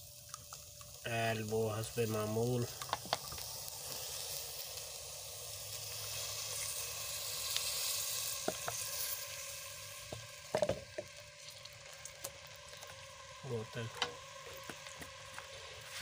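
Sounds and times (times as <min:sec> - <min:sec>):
onions sizzling in oil: 0:00.0 - 0:16.0.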